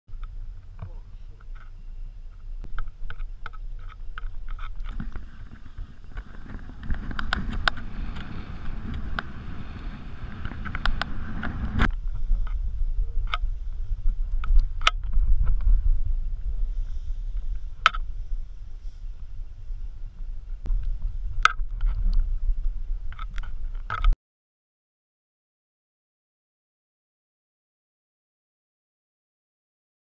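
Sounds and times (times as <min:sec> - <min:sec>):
wind rumble on microphone: 0:00.1 - 0:24.2
board sliding through snow: 0:04.9 - 0:14.3, 0:15.1 - 0:23.1.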